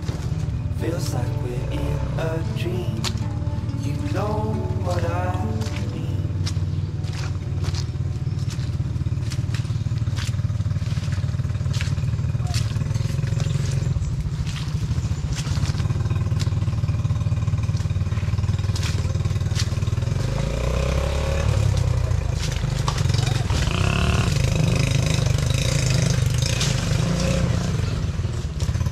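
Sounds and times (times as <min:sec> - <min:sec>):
vehicle engine low drone: 0:00.0 - 0:28.9.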